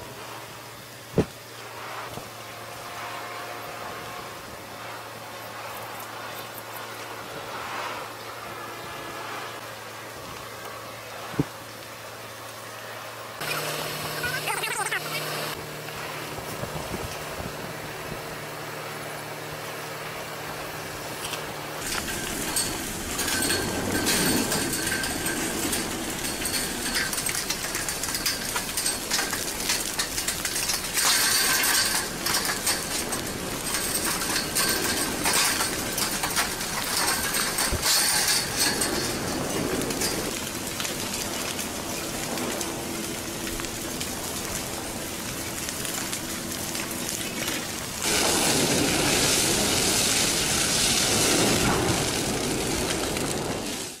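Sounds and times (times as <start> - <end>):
lava blocks crackling and crunching: 20.4 - 54.0.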